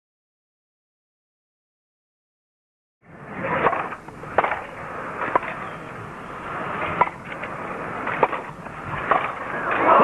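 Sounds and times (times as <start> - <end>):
crowd murmur: 3.1 - 10.0
racket hitting tennis ball: 3.6 - 5.6.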